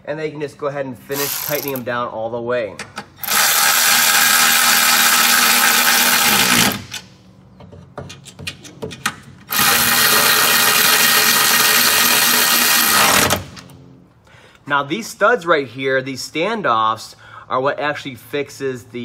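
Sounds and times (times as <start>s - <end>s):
cordless ratchet running: 1.1s - 1.8s, 3.2s - 7.0s, 9.5s - 13.5s.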